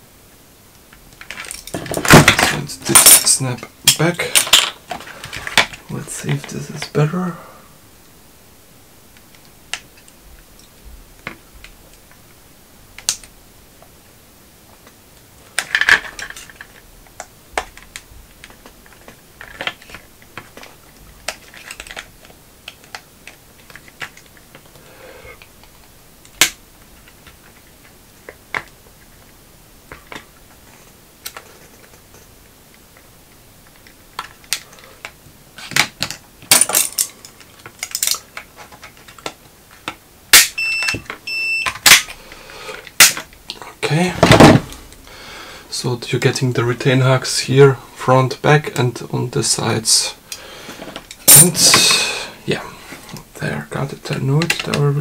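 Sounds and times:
plastic clicks and snaps: 0:13.0 - 0:13.9.

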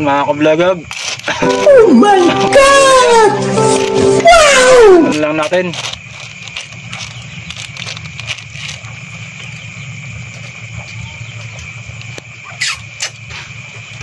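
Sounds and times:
crickets chirring: 0:05.2 - 0:14.0.

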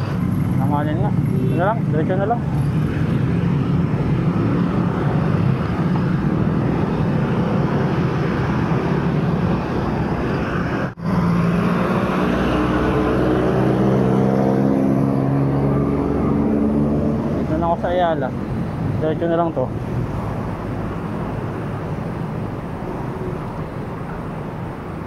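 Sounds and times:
vehicle engine accelerating: 0:00.0 - 0:18.2
city traffic noise: 0:00.0 - 0:25.0.

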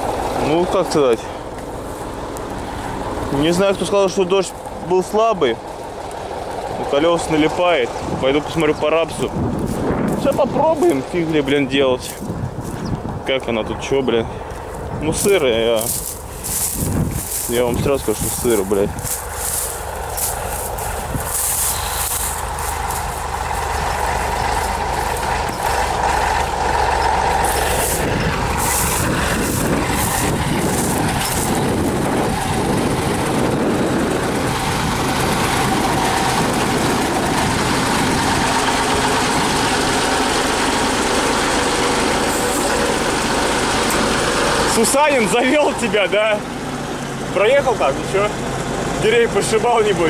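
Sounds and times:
tractor diesel engine running: 0:00.0 - 0:50.0
rustling: 0:14.6 - 0:32.0.

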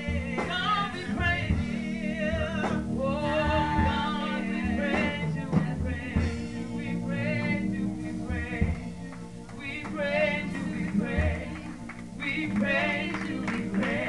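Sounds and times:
held keyboard chords: 0:00.0 - 0:14.0
person singing with vibrato: 0:00.0 - 0:14.0.

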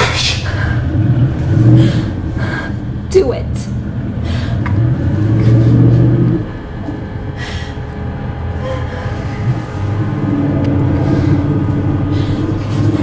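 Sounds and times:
low droning rumble: 0:00.0 - 0:13.0
faint higher tones: 0:02.1 - 0:13.0.

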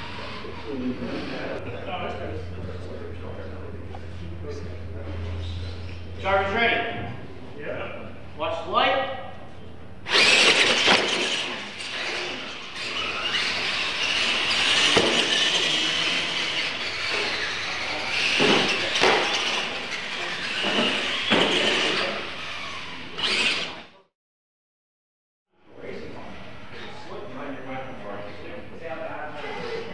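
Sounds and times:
high-pitched toy motor whine: 0:00.0 - 0:01.6, 0:10.0 - 0:24.0
toy trucks landing thumps: 0:10.1 - 0:11.6, 0:14.0 - 0:15.8, 0:18.2 - 0:22.0
tyre squeal: 0:10.1 - 0:23.8.

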